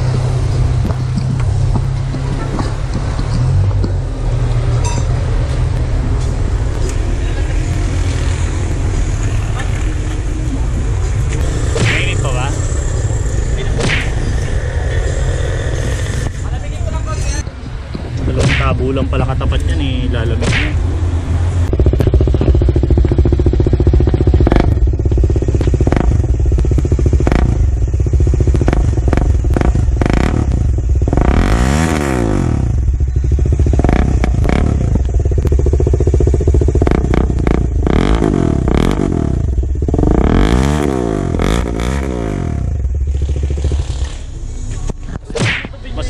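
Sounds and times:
motorcycle engine idling: 4.9 - 17.9, 21.5 - 40.5, 41.2 - 45.2.

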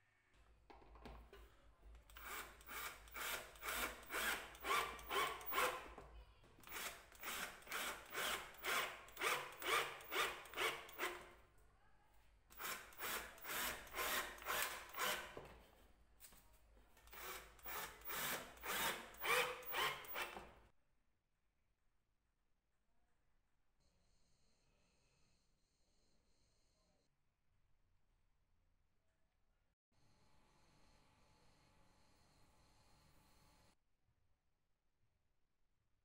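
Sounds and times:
cordless drill driving screws: 2.1 - 6.0, 6.6 - 11.3, 12.5 - 15.4, 17.1 - 20.6.

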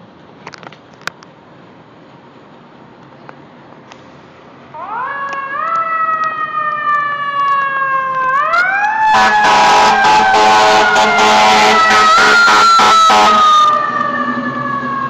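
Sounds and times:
loud steady blaring: 4.7 - 15.0
fire engine siren winding: 4.8 - 15.0.

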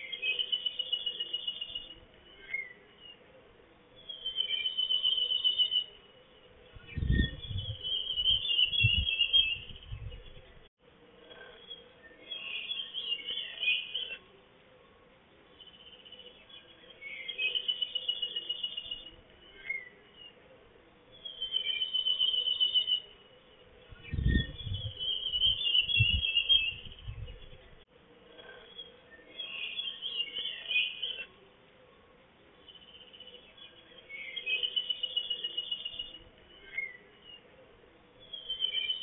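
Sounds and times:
songbird trilling: 21.1 - 23.3, 23.9 - 27.8, 38.2 - 39.0.

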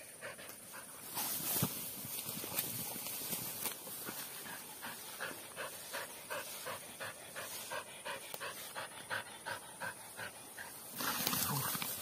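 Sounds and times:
dog panting: 0.0 - 1.1, 4.1 - 11.2.

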